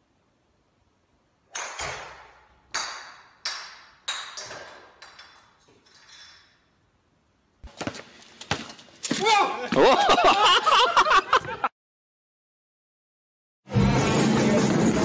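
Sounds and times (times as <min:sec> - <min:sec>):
ball ricocheting with ringing pings: 0:01.5 - 0:05.4.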